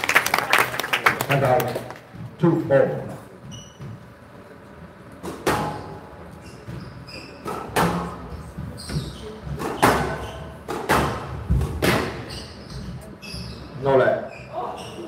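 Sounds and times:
shoe squeaks on court floor: 3.4s - 4.1s, 5.7s - 7.7s, 8.4s - 10.6s, 12.2s - 15.0s.

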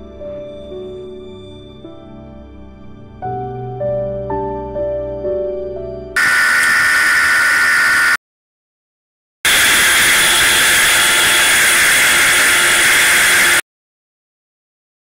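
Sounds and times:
motorcycle engine whine: 6.2s - 8.2s, 9.5s - 13.6s.

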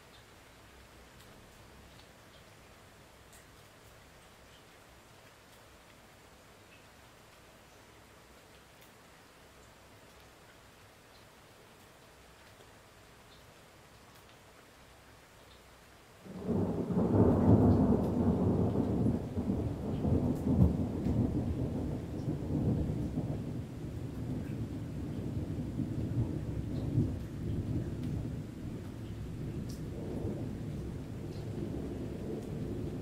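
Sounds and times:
deep thunder rumbling: 16.3s - 33.0s.

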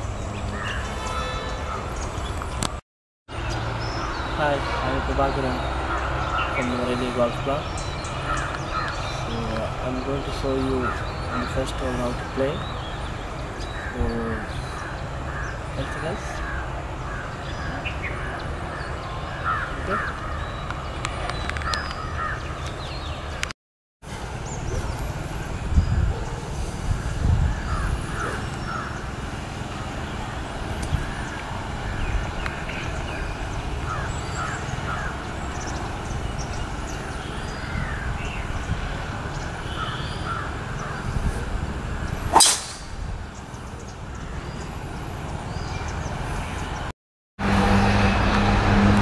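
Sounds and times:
birds chirping: 0.0s - 23.5s, 24.2s - 46.9s
golf club striking ball: 42.3s - 43.0s.

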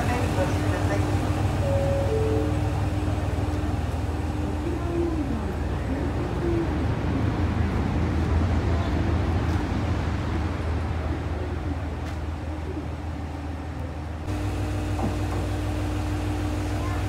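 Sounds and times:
steady hum: 0.0s - 7.7s
faint voices: 0.0s - 14.2s.

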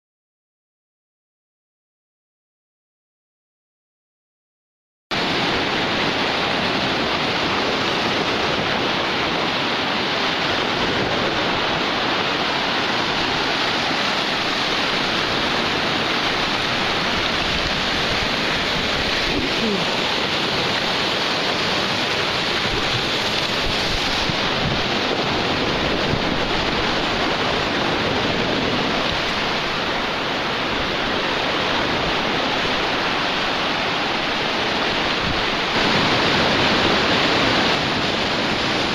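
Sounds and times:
waves breaking on beach: 5.1s - 38.9s.

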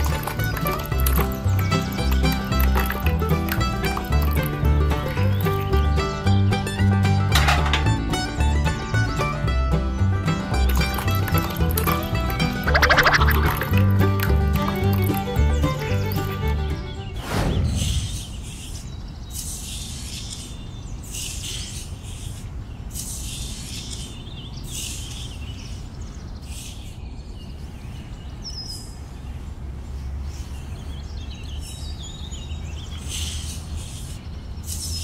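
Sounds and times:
bird chirping: 0.0s - 6.8s, 7.8s - 29.5s, 30.2s - 35.0s.

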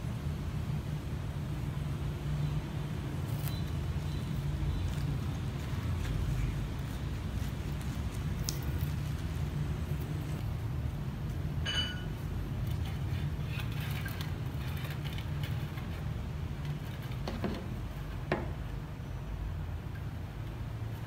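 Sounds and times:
metallic clink: 11.6s - 12.2s.

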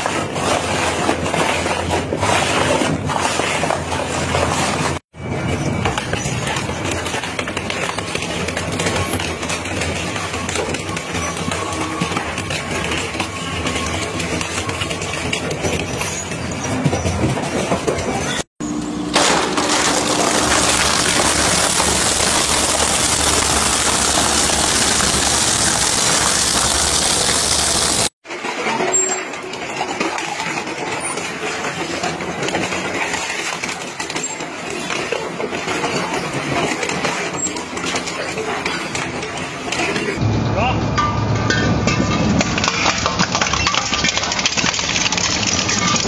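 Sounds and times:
shredder crunching cans and buckets: 0.0s - 5.1s, 5.8s - 40.2s, 41.8s - 46.0s
shredder grinding: 18.6s - 28.2s.

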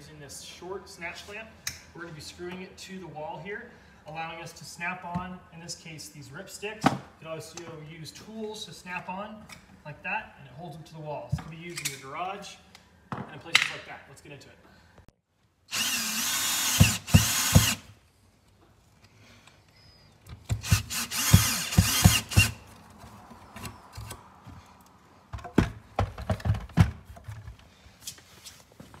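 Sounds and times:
cordless drill driving screws: 15.7s - 17.9s, 20.5s - 22.6s
plastic clacks and knocks: 25.3s - 27.6s.

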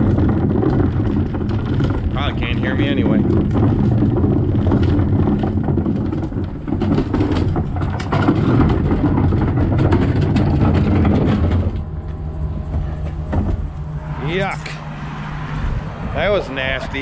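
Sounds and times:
plastic garbage cans knocking: 0.0s - 13.8s
truck engine idling: 10.6s - 17.0s.

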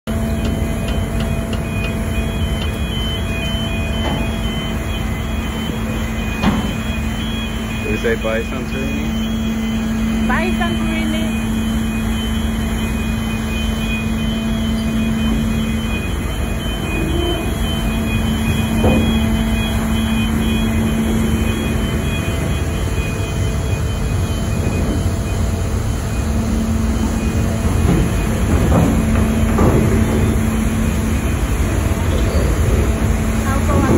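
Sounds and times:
ferry engines humming: 0.1s - 33.9s.

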